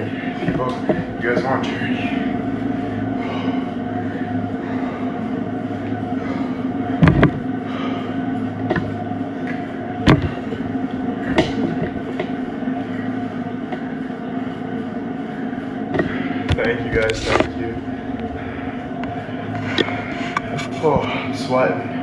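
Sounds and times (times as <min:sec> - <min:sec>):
exercise bike whirring: 0:00.0 - 0:22.0.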